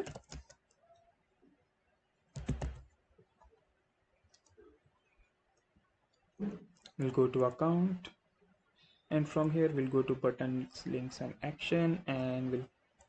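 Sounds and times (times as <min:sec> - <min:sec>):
keyboard typing: 0:00.0 - 0:01.0, 0:02.3 - 0:03.5.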